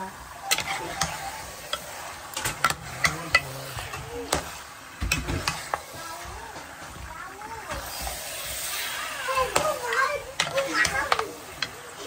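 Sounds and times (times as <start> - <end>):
meat sizzling: 0.0 - 12.0
spoon scraping metal pot: 0.4 - 5.8.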